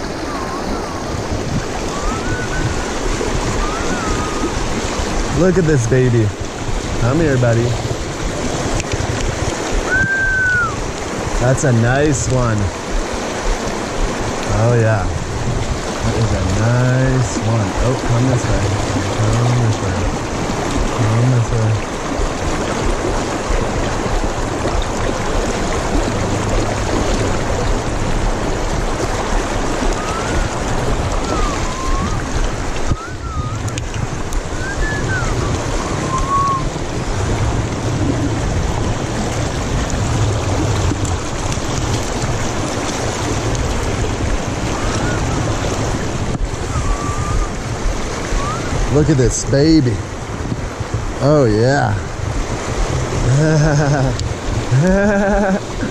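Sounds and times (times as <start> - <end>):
river rushing over rocks: 0.0 - 55.9
wind buffeting microphone: 0.0 - 55.9
faint short whistles: 9.9 - 10.8, 31.2 - 32.2, 32.9 - 33.7, 34.6 - 36.7, 46.7 - 47.6, 48.4 - 48.8.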